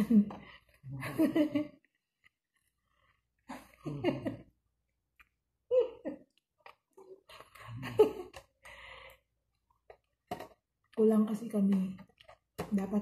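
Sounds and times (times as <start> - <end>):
woman laughing: 3.5 - 4.4.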